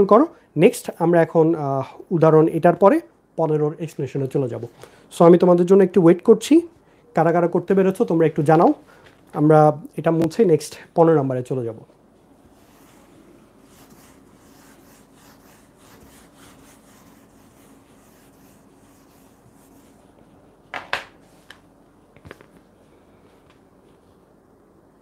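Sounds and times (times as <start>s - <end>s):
duster scrubbing whiteboard: 12.4s - 21.5s.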